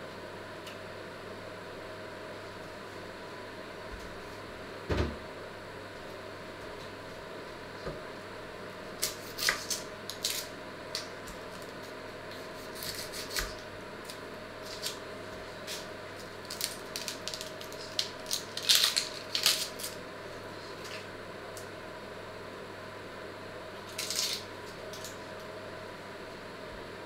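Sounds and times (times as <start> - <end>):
steady low hum: 0.0 - 27.0
knife scraping onion skin: 9.0 - 10.5, 12.3 - 13.6, 23.9 - 25.1.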